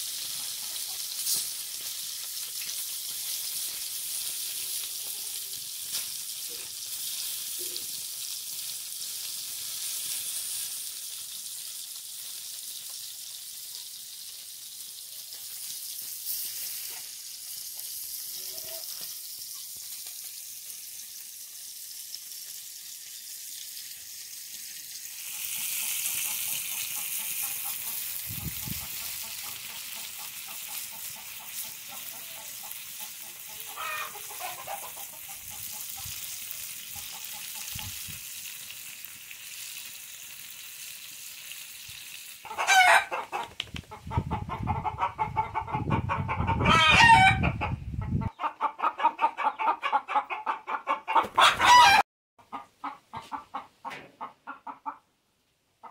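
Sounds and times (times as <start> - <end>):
fish frying in oil: 0.0 - 43.6
hen clucking rapidly: 25.3 - 38.2, 42.4 - 55.0.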